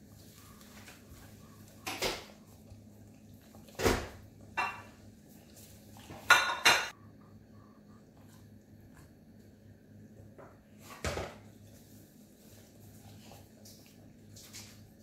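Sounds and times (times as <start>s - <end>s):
dishes and utensils clattering: 3.8s - 5.0s, 6.1s - 7.0s.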